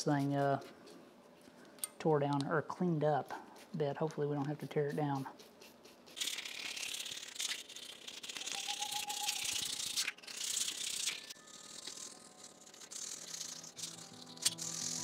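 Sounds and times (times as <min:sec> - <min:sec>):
razor blade scraping wet metal: 0:03.5 - 0:15.0.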